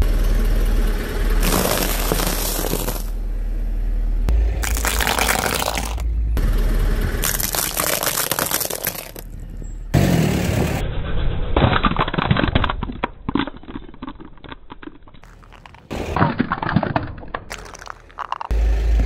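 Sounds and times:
car low rumble: 0:00.0 - 0:19.0
walnut shells cracking under a tyre: 0:01.4 - 0:03.1, 0:04.6 - 0:06.0, 0:07.2 - 0:09.4, 0:11.6 - 0:18.6.

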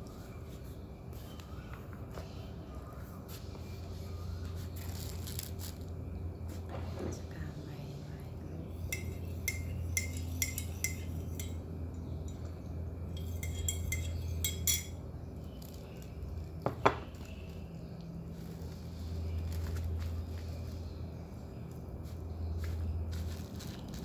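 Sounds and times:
steady low hum: 0:00.0 - 0:24.0
spoon knocking on mug: 0:08.8 - 0:11.6, 0:13.2 - 0:15.0
teaspoon clinking in ceramic mug: 0:08.8 - 0:11.6, 0:12.2 - 0:15.0.

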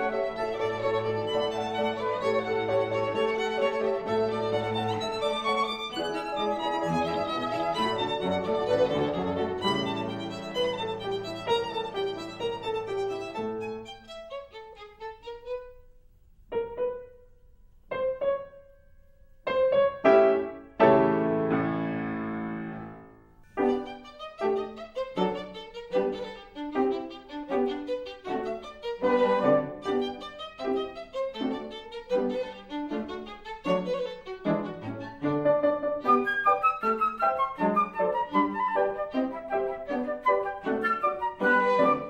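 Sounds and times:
instrumental film score: 0:00.0 - 0:42.0.

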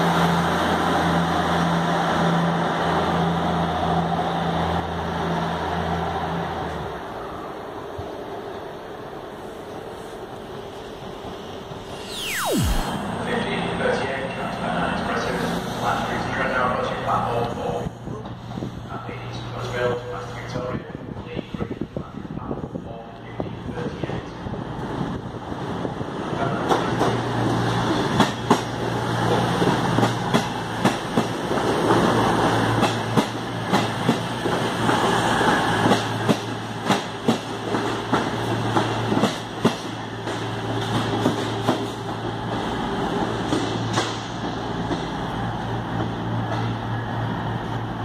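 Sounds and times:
train wheels clicking on rail joints: 0:26.7 - 0:45.3.

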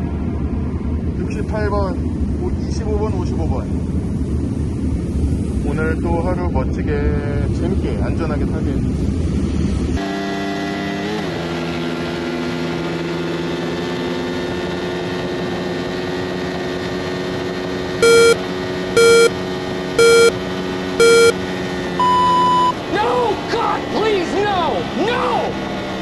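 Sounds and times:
loud short beeps: 0:18.0 - 0:18.4, 0:19.0 - 0:19.3, 0:20.0 - 0:20.4, 0:21.0 - 0:21.4, 0:22.0 - 0:22.8.

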